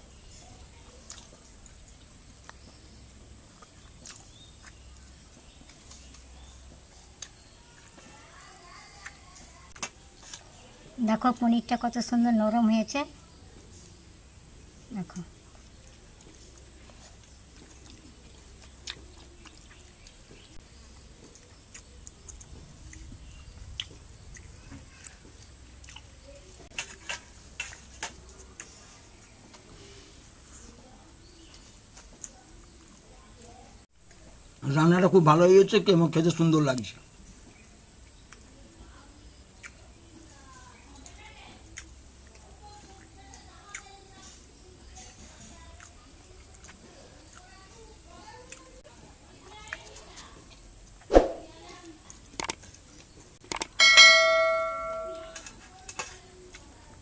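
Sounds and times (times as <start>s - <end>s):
quiet chewing: 0.0s - 11.0s, 13.2s - 34.6s, 36.8s - 53.8s, 55.2s - 57.0s
faint steady high tone: 53.8s - 55.5s.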